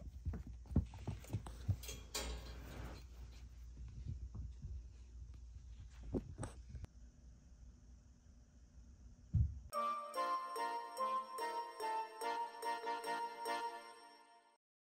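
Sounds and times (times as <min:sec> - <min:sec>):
kittens' paws pattering on carpet: 0:00.0 - 0:01.8.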